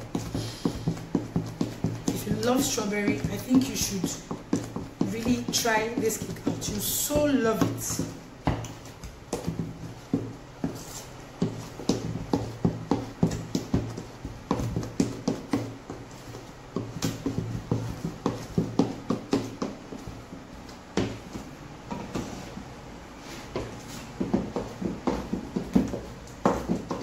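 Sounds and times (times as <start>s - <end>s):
spatula knocking on mixing bowl: 0.0s - 16.1s
steady low hum: 0.0s - 27.0s.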